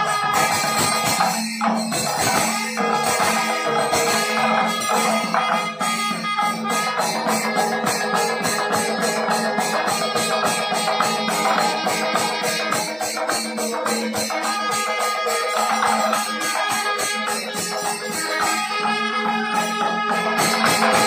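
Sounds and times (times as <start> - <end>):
clashing cymbals: 0.0 - 21.0
drums playing quick beat: 0.0 - 21.0.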